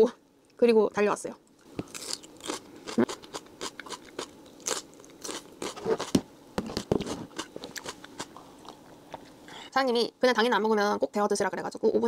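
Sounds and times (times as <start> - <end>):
person chewing food: 1.6 - 9.3.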